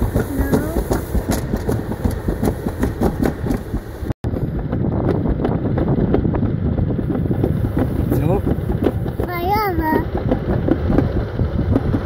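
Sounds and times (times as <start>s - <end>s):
sled wheels rumbling on metal track: 0.0s - 12.0s.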